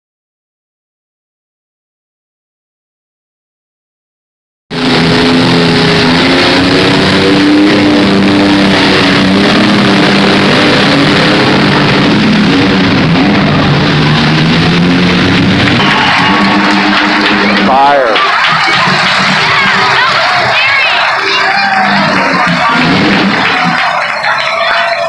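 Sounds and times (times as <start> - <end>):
engines revving loudly: 4.7 - 25.0.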